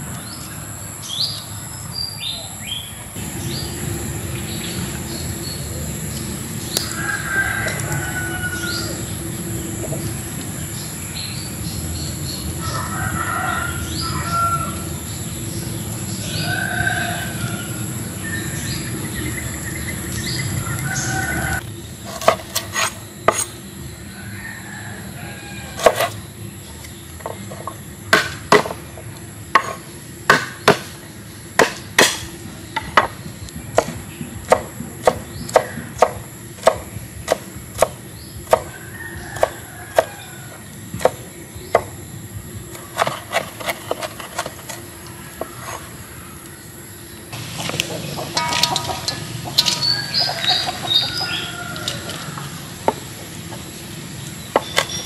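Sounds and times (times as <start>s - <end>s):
cleaver chopping on wooden board: 22.1s - 23.5s, 25.8s - 26.1s, 27.6s - 28.8s, 29.6s - 31.0s, 31.6s - 32.3s, 33.8s - 38.7s.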